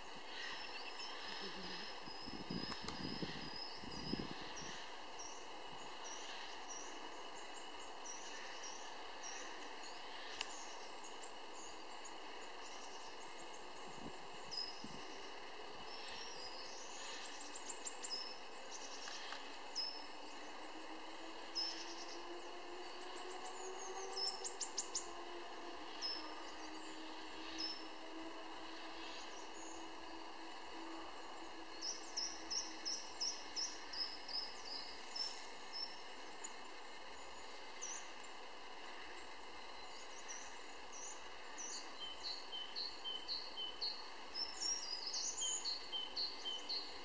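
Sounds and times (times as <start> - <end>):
background hiss: 0.0 - 47.0
faint low drone: 0.0 - 47.0
small birds chirping: 0.0 - 47.0.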